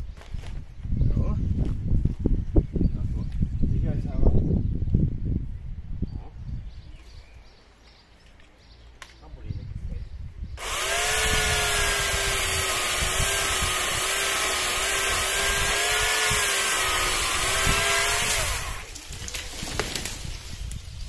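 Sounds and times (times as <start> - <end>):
electric chainsaw cutting wood: 10.6 - 19.4.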